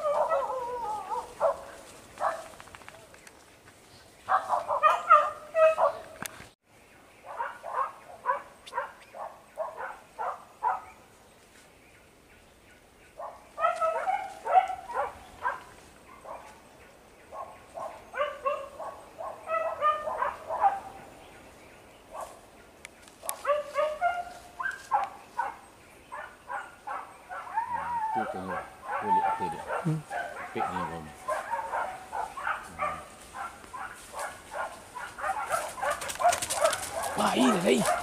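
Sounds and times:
dogs baying and yelping: 0.0s - 2.8s, 4.3s - 6.2s, 13.2s - 16.6s, 17.4s - 21.1s, 23.2s - 38.0s.

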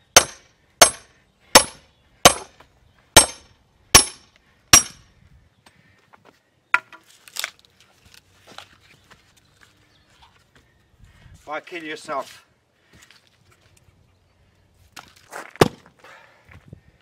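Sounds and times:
knocks of split wood: 0.1s - 2.5s, 15.0s - 15.9s.

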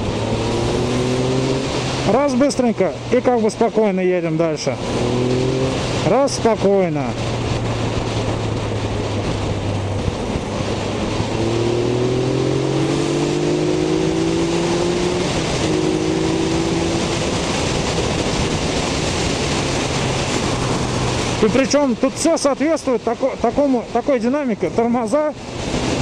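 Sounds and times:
motorcycle engine accelerating: 0.0s - 2.4s, 4.7s - 21.8s
wind rushing on microphone: 0.0s - 26.0s.

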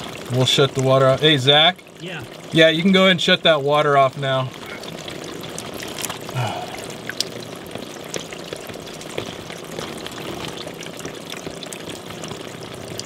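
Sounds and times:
water pouring and dripping: 0.0s - 13.0s.

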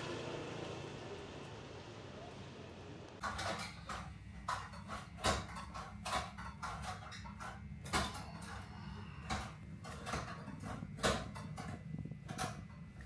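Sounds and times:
low hum: 0.0s - 3.3s.

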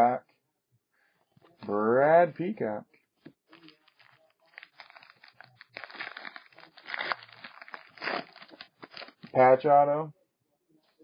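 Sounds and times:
foil wrapper tearing and crinkling: 3.5s - 9.3s.

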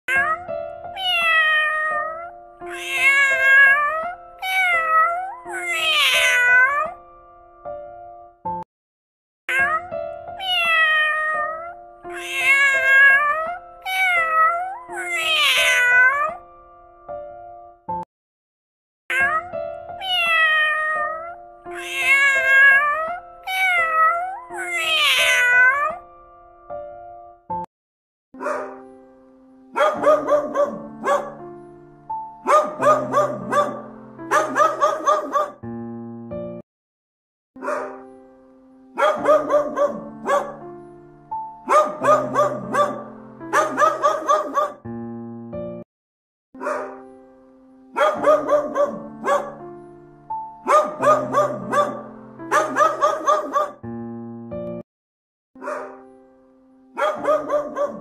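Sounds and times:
cat meowing: 0.1s - 7.0s, 9.5s - 16.4s, 19.1s - 26.0s
soft background music: 0.1s - 8.6s, 9.5s - 18.0s, 19.1s - 27.7s, 28.4s - 36.6s, 37.6s - 45.8s, 46.6s - 54.8s, 55.6s - 58.0s.

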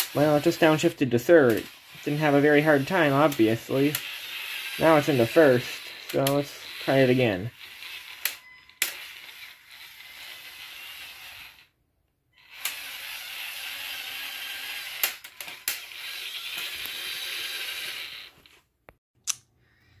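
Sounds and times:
toy motors gear whir: 0.0s - 18.6s
sharp clicks: 19.2s - 19.5s.

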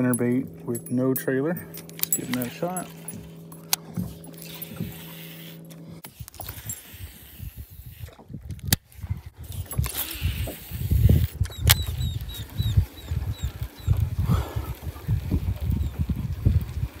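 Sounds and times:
fishing reel clicks: 0.0s - 8.8s, 9.4s - 13.8s
wind gusting on microphone: 6.1s - 17.0s.

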